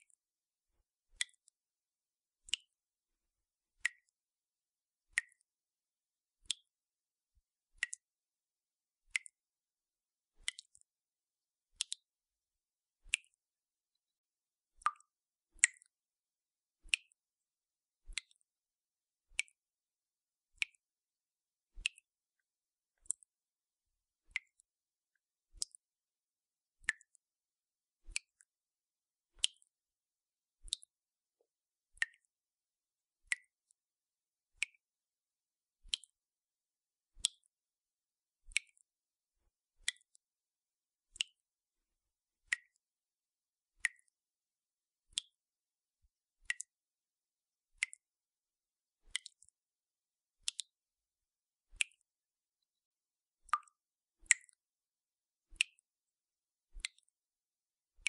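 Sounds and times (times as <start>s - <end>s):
water dripping from a tap: 1.2s - 1.6s, 2.5s - 2.8s, 3.8s - 4.2s, 5.1s - 5.5s, 6.4s - 6.7s, 7.8s - 8.1s, 10.4s - 10.9s, 11.8s - 12.1s, 14.8s - 16.0s, 18.1s - 18.4s, 24.3s - 24.7s, 25.6s - 25.8s, 26.8s - 27.2s, 29.4s - 29.7s, 30.7s - 31.0s, 32.0s - 32.3s, 35.9s - 36.2s, 37.2s - 37.5s, 41.2s - 41.4s, 42.5s - 42.8s, 43.8s - 44.2s, 45.1s - 45.4s, 46.4s - 46.8s, 47.8s - 48.1s, 49.1s - 49.6s, 51.8s - 52.1s, 53.5s - 54.6s, 55.6s - 55.8s, 56.8s - 57.1s.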